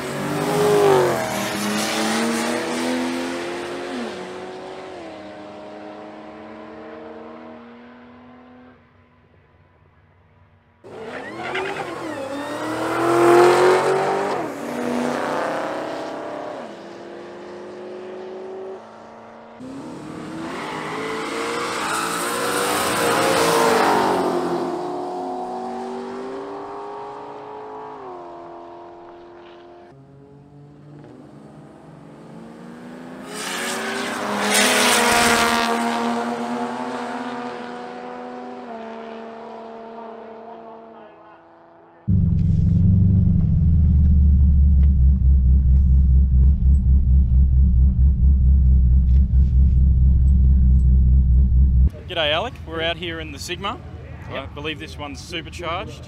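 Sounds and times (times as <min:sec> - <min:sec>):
drag car engines accelerating: 0:10.9 - 0:29.2, 0:42.1 - 0:52.3.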